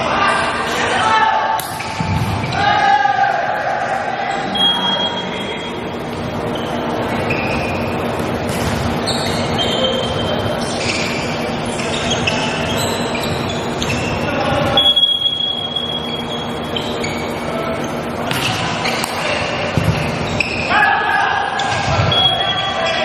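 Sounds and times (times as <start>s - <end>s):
large hall echo: 0.0s - 23.0s
steady hum: 0.0s - 23.0s
shoes squeaking on hardwood floor: 6.4s - 20.7s.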